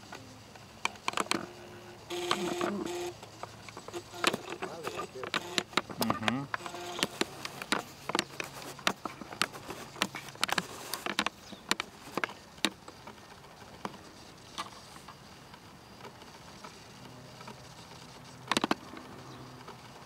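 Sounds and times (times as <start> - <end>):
camcorder zoom motor whirring: 0.0 - 20.0
sharp clicks: 0.1 - 13.2, 18.4 - 20.0.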